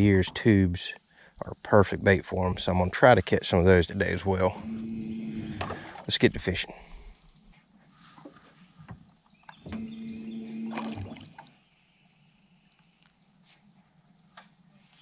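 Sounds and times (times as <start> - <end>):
faint high-pitched buzz: 4.0 - 11.5
electric boat motor humming: 4.4 - 6.0, 9.5 - 11.5.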